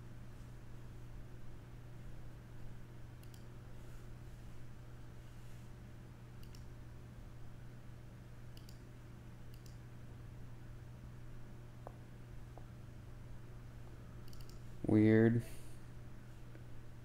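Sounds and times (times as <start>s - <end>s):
steady low hum: 0.0s - 17.0s
computer mouse double-clicking: 3.2s - 3.5s, 6.4s - 6.7s, 8.5s - 8.8s, 9.5s - 9.8s, 14.2s - 14.6s.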